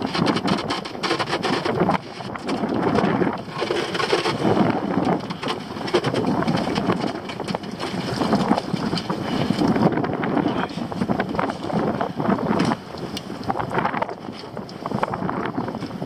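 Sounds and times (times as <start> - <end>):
pots and rope knocking and rattling: 0.0 - 9.7
wind buffeting microphone: 0.0 - 16.0.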